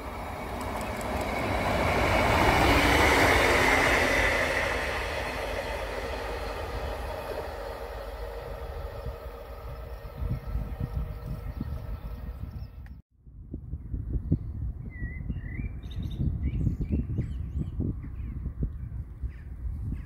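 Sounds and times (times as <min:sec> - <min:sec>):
diesel train passing: 0:00.0 - 0:13.0.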